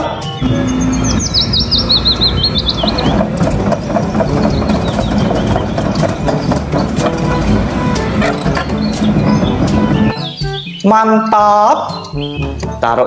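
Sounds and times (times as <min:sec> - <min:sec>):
bird chirping rapidly: 0:00.1 - 0:12.8
truck engine rumbling and knocking: 0:00.2 - 0:10.6.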